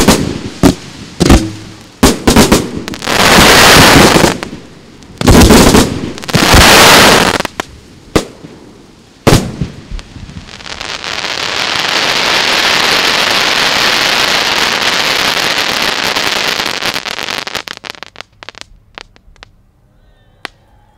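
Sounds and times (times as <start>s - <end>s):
firework bursts booming: 0.0s - 19.5s
firework crackle: 0.0s - 19.5s.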